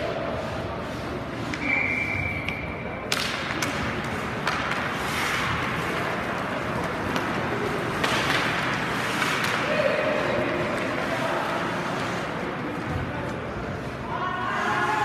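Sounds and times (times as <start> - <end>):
skates scraping on ice: 0.0 - 14.0
hockey sticks clacking: 0.0 - 14.1.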